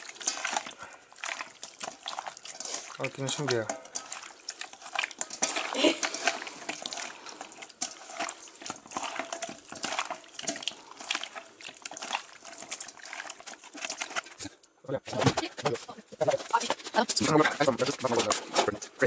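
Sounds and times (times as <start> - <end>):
wet squelches and smacks: 0.0 - 14.8.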